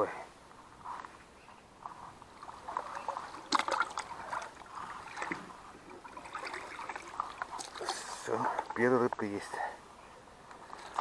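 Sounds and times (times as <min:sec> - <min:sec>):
reeds and grass rustling: 0:00.5 - 0:08.9
small water splashes: 0:01.9 - 0:08.9, 0:10.6 - 0:11.0
sharp water splash: 0:02.6 - 0:08.1.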